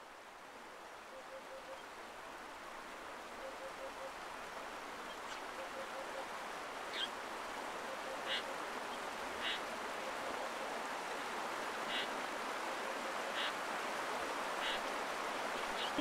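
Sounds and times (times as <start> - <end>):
flowing water: 0.0 - 16.0
bird raspy calls: 8.2 - 8.5, 9.4 - 9.6.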